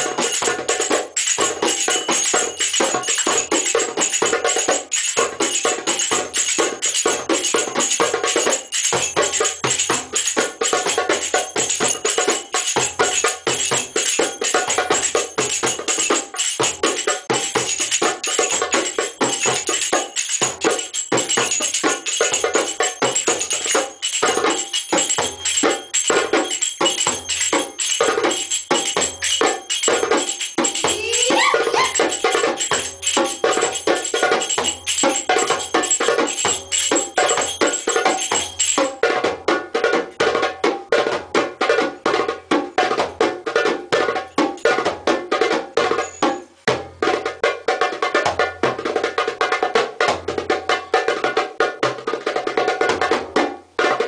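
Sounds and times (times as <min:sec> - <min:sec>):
bright jingling: 0:00.0 - 0:39.4, 0:44.0 - 0:45.1, 0:45.8 - 0:46.8
hand drums playing: 0:00.0 - 0:46.1.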